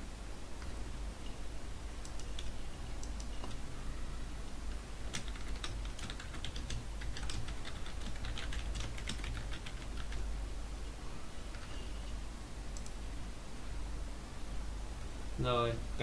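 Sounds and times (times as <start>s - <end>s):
typing on computer keyboard: 2.1s - 3.6s, 5.1s - 10.2s.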